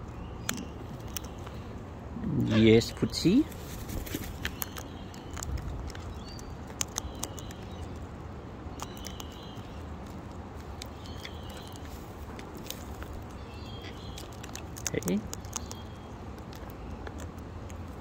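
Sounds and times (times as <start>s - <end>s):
beak cracking seeds: 0.4s - 1.6s, 3.6s - 18.0s.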